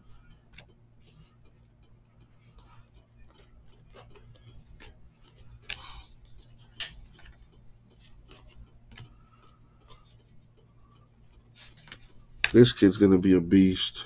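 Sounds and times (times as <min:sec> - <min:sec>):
trading cards flipped by hand: 0:03.9 - 0:09.1, 0:11.4 - 0:12.6.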